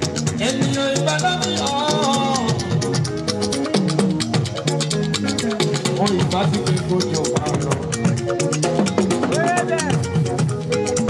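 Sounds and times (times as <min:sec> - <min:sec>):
drum kit: 0:00.0 - 0:11.0
electric guitar: 0:00.0 - 0:11.0
quick percussion rhythm: 0:00.0 - 0:11.0
man singing into a microphone: 0:00.2 - 0:02.9.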